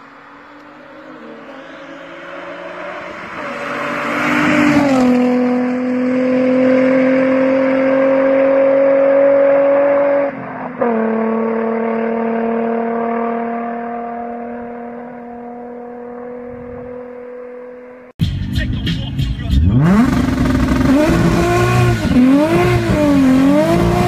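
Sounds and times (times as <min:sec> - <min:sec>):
car driving past accelerating: 0:00.0 - 0:17.9.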